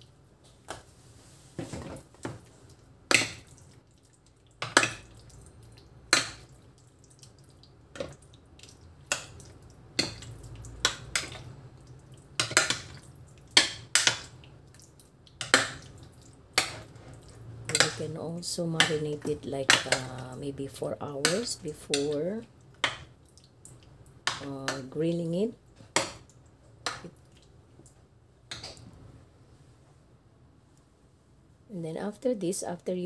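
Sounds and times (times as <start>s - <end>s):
wet squelches of stirred meat: 0.6s - 25.0s.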